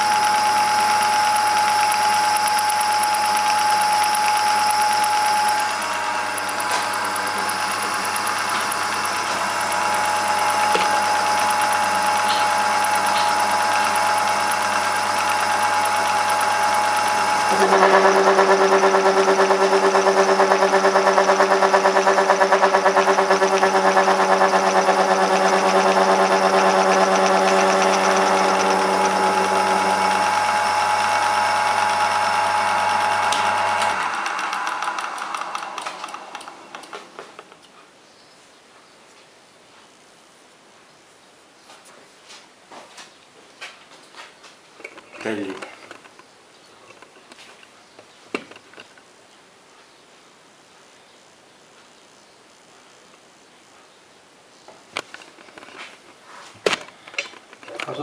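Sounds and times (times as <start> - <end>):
metal lathe motor whine: 0.0 - 37.4.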